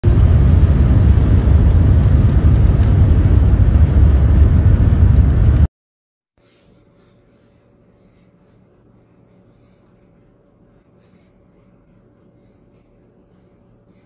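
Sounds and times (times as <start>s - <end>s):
car rumble inside cabin: 0.0s - 5.7s
faint low hum: 0.0s - 5.7s, 6.4s - 14.0s.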